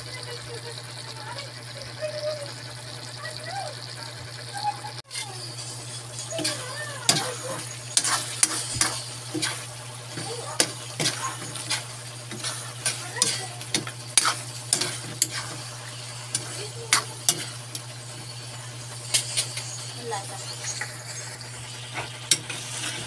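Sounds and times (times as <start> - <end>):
steady sizzle: 0.0 - 23.0
metal spatula scraping a pan: 5.0 - 20.9, 21.9 - 23.0.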